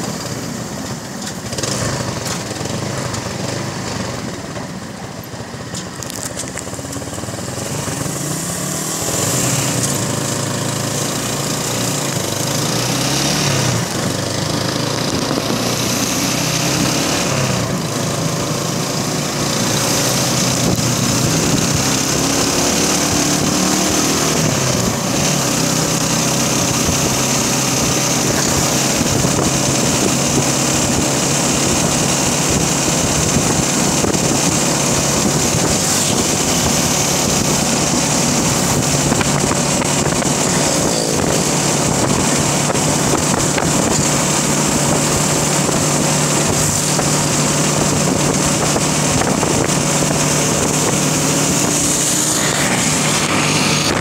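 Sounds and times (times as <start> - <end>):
small motorcycle engine running: 0.0 - 54.0
wind on microphone: 18.4 - 54.0.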